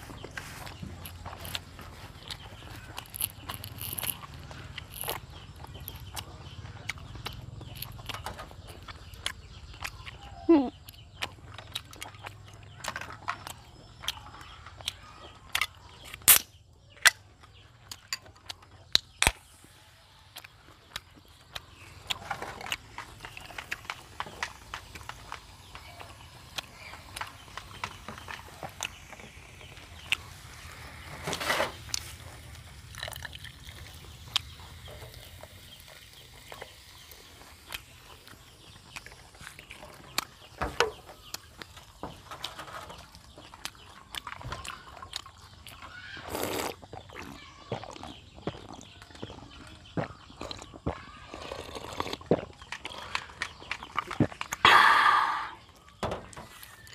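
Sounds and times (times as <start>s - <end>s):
mouth clicks and smacks chewing: 0.0s - 30.9s, 31.9s - 54.7s
slurping drink: 46.2s - 46.8s, 51.3s - 53.4s.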